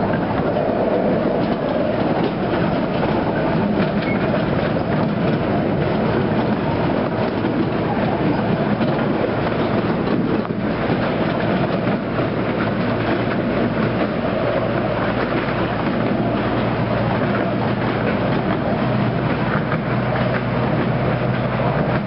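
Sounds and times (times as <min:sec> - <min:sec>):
train wheels rattling on rails: 0:00.0 - 0:22.0.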